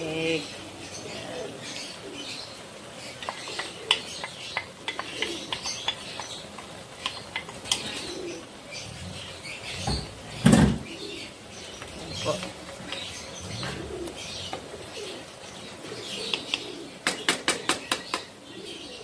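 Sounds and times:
food simmering in a wok: 1.8 - 15.7.

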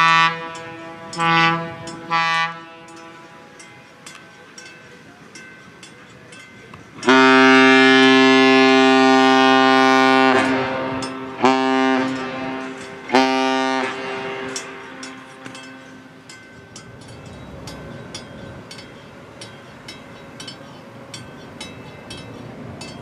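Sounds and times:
ship's horn blasts: 0.0 - 4.2, 7.0 - 18.8.

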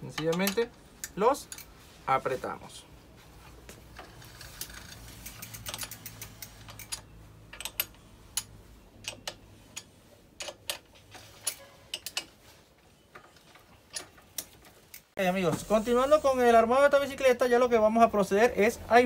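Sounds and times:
wrench clicking on metal: 0.1 - 1.7, 4.3 - 12.3.

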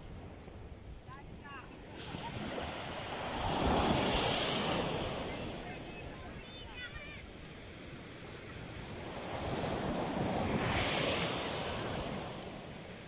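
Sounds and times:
small waves breaking on beach: 0.0 - 13.0.

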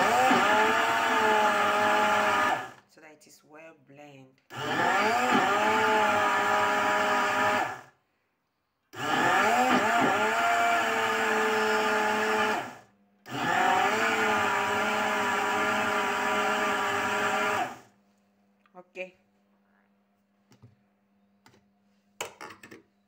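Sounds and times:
blender motor whirring: 0.0 - 2.9, 4.5 - 8.0, 8.9 - 18.0.

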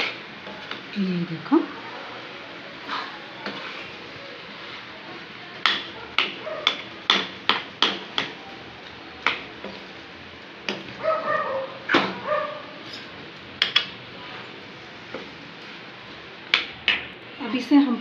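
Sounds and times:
spoon knocking metal pan: 5.6 - 8.4.

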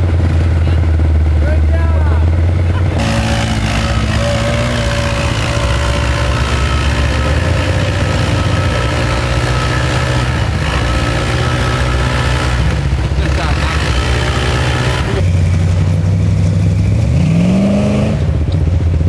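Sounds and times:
atv engine revving: 0.0 - 19.0.

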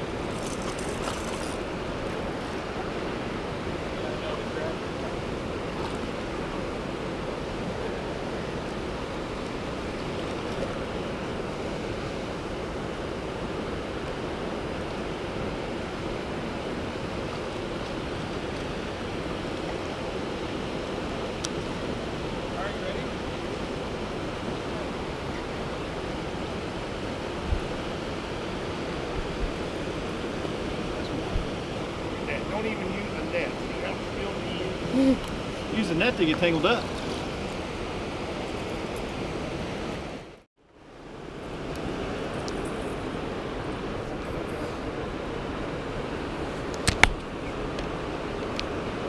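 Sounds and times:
stream water flowing: 0.0 - 49.0.

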